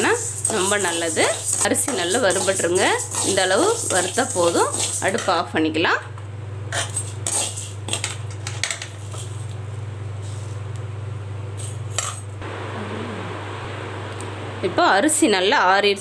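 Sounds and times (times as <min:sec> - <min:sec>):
steady low hum: 0:09.5 - 0:15.8.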